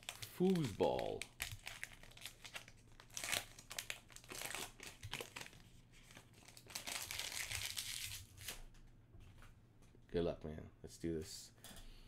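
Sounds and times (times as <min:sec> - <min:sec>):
foil wrapper crinkling and tearing: 0:00.0 - 0:08.6.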